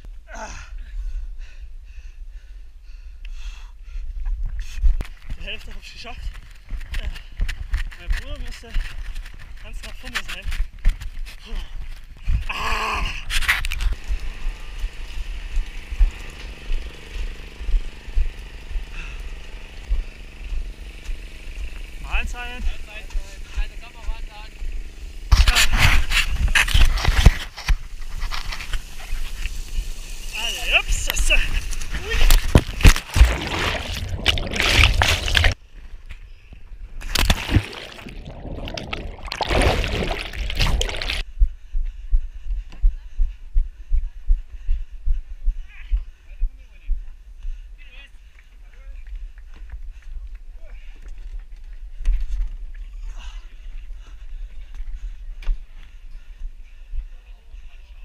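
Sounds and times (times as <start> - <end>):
muddy water splashing and sloshing: 31.8 - 35.6, 37.0 - 41.2.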